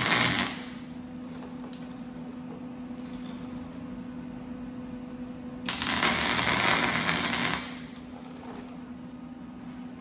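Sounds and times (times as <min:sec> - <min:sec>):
welder arc buzzing: 0:00.0 - 0:02.2, 0:05.6 - 0:09.2.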